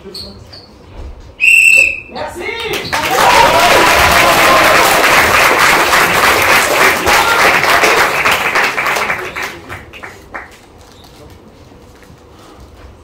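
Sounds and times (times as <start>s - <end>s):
audience applauding: 2.6s - 10.6s.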